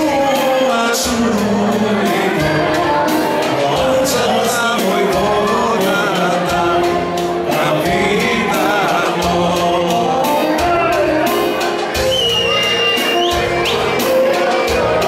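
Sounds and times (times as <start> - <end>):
man singing folk song: 0.0 - 11.9
electronic keyboard chords and beat: 2.0 - 15.0.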